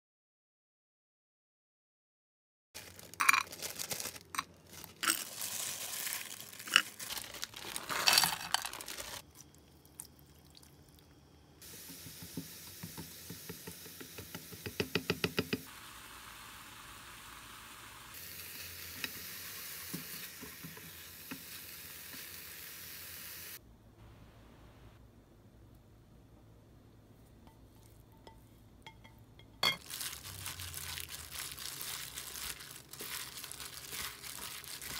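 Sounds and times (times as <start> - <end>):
vegetables sizzling in frying pan: 11.6 - 14.6, 15.6 - 23.6.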